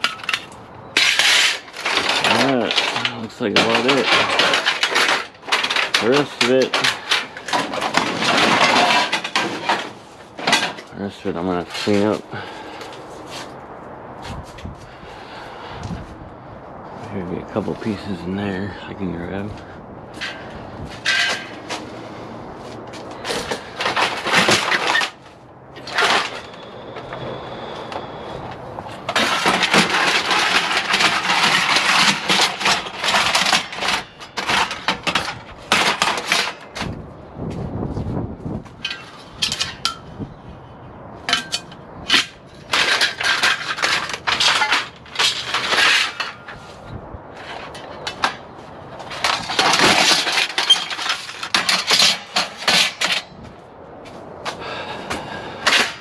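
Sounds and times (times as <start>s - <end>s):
aluminum lengths clanking together: 0.0s - 12.8s, 20.2s - 21.8s, 23.2s - 25.2s, 25.8s - 28.0s, 28.9s - 36.9s, 38.8s - 40.2s, 41.2s - 46.8s, 47.4s - 53.5s, 55.5s - 56.0s.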